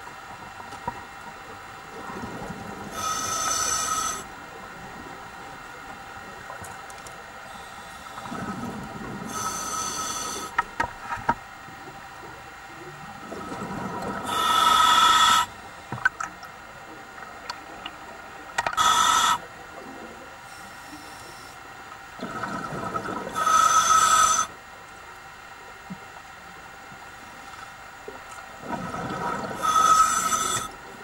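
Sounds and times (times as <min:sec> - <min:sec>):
hissing regulator breaths: 0:02.9 - 0:04.3, 0:07.4 - 0:10.7, 0:14.2 - 0:15.6, 0:18.8 - 0:19.4, 0:23.3 - 0:24.6, 0:29.4 - 0:30.8
low bubbling rumble: 0:13.0 - 0:14.3, 0:22.2 - 0:23.4.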